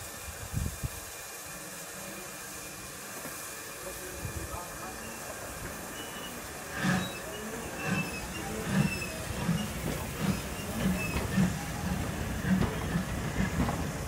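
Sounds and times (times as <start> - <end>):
steam locomotive exhaust beats: 0.0 - 14.0
wheels squealing: 5.9 - 13.6.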